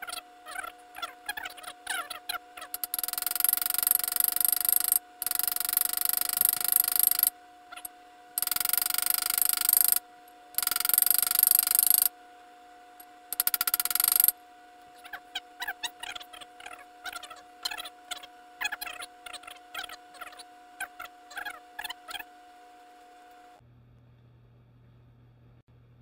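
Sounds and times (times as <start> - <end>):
small hammer tapping on metal: 2.7 - 7.3, 8.4 - 10.0, 13.4 - 14.3.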